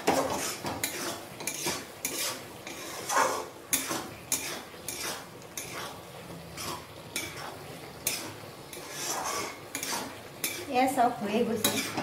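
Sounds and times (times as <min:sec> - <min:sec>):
metal spatula scraping a wok: 0:00.0 - 0:12.0.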